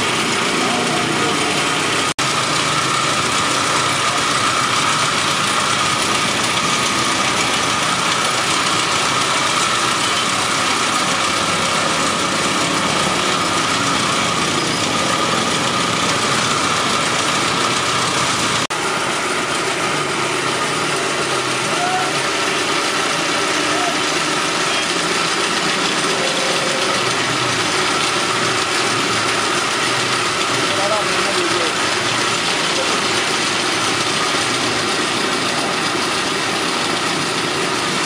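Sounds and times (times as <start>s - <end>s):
belt-driven machine humming: 0.0s - 38.0s.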